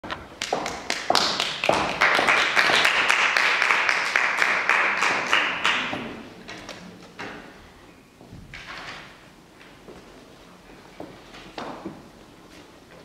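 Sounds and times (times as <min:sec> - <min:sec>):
audience clapping: 0:00.1 - 0:06.3.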